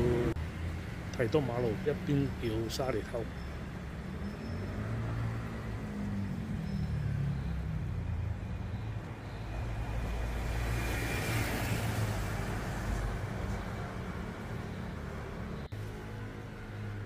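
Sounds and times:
traffic engines rumbling: 0:00.0 - 0:17.0
bus passing with hiss: 0:09.4 - 0:17.0.

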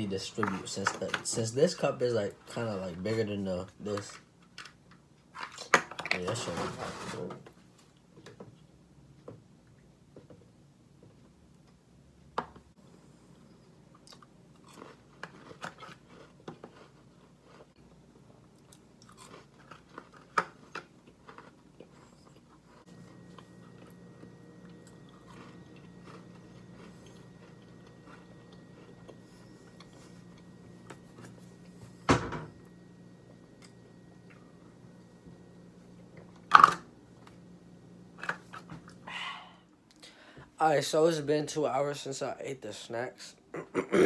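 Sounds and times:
steady low hum: 0:06.1 - 0:44.0
crunchy chewing: 0:13.9 - 0:31.5.

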